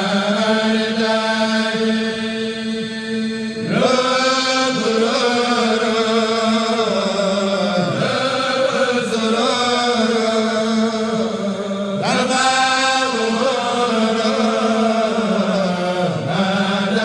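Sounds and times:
man chanting: 0.0 - 17.0.

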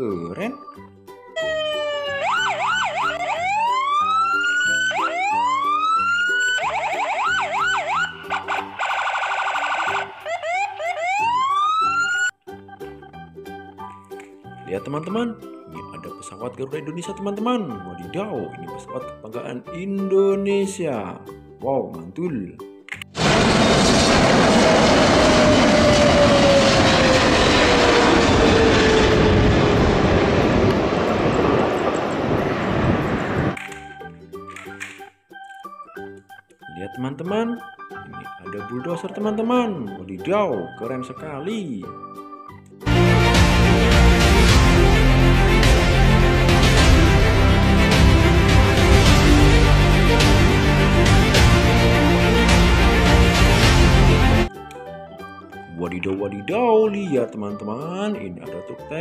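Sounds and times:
electronic police siren: 1.4 - 12.4, 24.2 - 34.1
jet engine whine: 23.2 - 33.6
plane touching down on runway: 23.2 - 33.6, 42.9 - 54.4.

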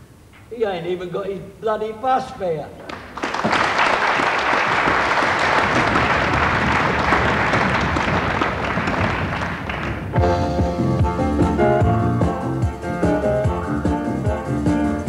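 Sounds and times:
audience applauding: 2.9 - 10.2.

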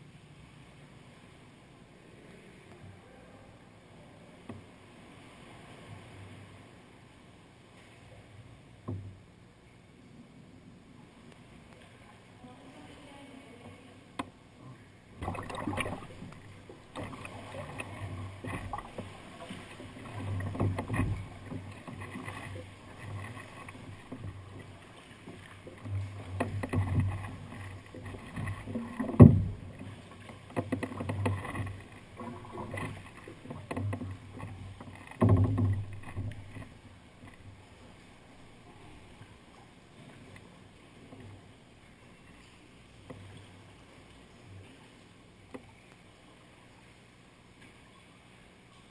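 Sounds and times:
water sloshing against hull: 0.0 - 48.9
kayak paddle strokes: 15.1 - 46.9.

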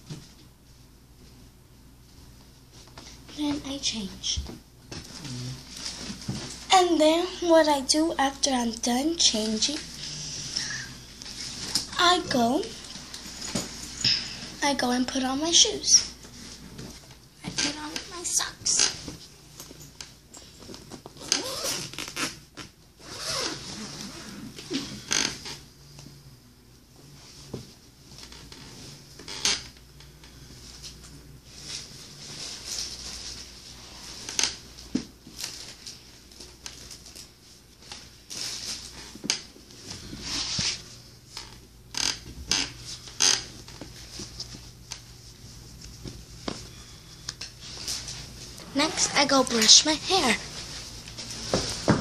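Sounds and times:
fabric rustling: 9.0 - 14.6, 30.6 - 41.5, 42.5 - 52.0
fabric rubbing: 23.0 - 24.6, 39.8 - 41.1, 47.6 - 51.9.

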